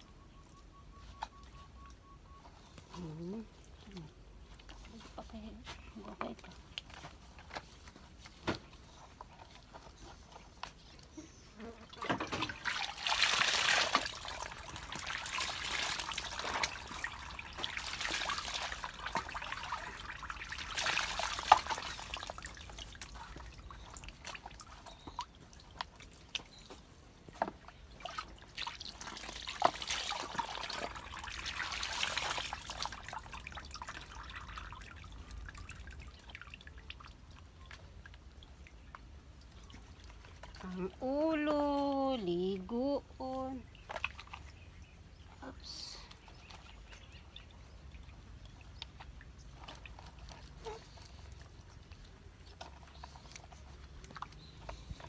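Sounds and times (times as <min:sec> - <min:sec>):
water splashing pours: 0:11.9 - 0:26.6, 0:27.6 - 0:41.2
water dripping and trickling: 0:11.9 - 0:55.0.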